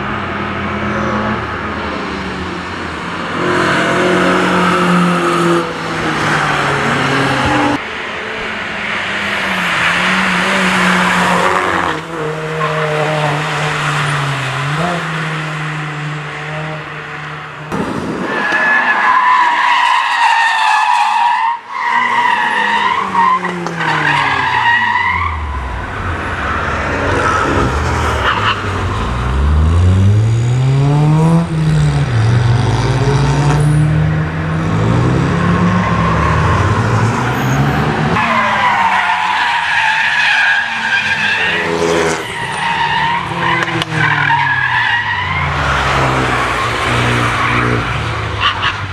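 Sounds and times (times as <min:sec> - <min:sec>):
car engines passing at speed: 0:00.0 - 0:19.7, 0:21.6 - 0:48.9
engine revving up and down: 0:29.1 - 0:38.2.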